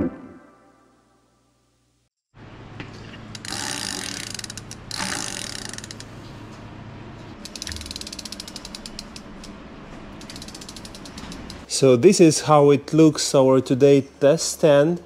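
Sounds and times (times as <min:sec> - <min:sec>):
bicycle hub ratcheting clicks: 0:03.3 - 0:06.1, 0:07.4 - 0:09.5, 0:10.2 - 0:11.7.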